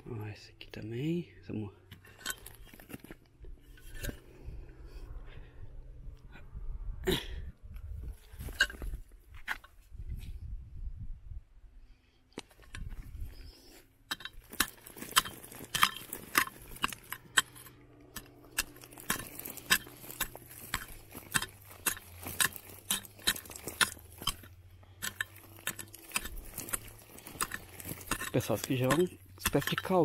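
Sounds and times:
digging tool striking stony soil: 0:08.3 - 0:09.7, 0:12.4 - 0:30.0.

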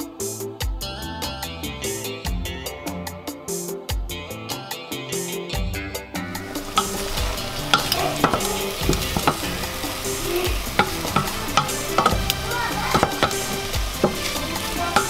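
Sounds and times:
food sizzling in a pot: 0:06.4 - 0:15.0
wooden spoon scraping a pot: 0:06.5 - 0:15.0.

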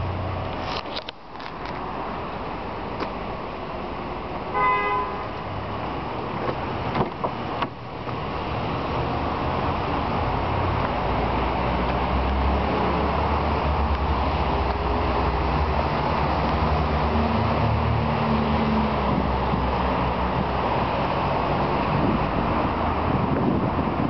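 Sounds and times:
street traffic: 0:00.0 - 0:24.0
car horn toot: 0:04.5 - 0:05.4.

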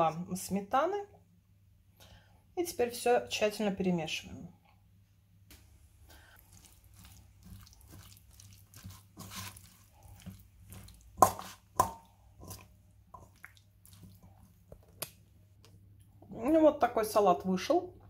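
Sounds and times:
spoon stirring wet salad: 0:06.1 - 0:16.2
spoon knocking metal bowl: 0:11.2 - 0:12.1.

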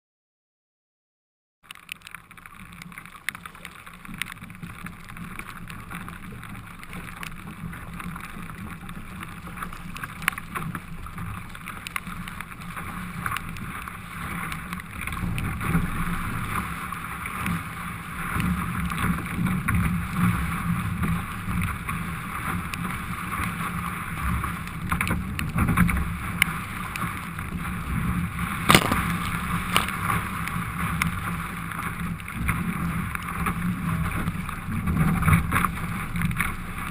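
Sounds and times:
rain: 0:01.6 - 0:36.9
water rushing and splashing: 0:24.3 - 0:36.9
sharp knock: 0:28.7 - 0:29.9.

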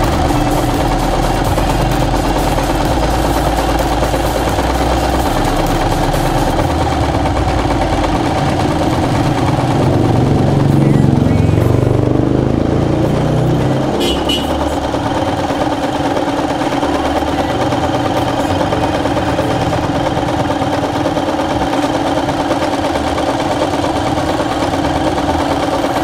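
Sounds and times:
sewing machine stitching: 0:00.0 - 0:26.0.

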